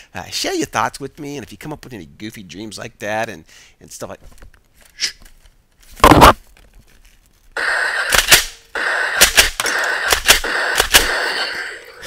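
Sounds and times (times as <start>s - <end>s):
toy gun shots: 7.6s - 11.9s
toy gun blast: 7.6s - 12.0s.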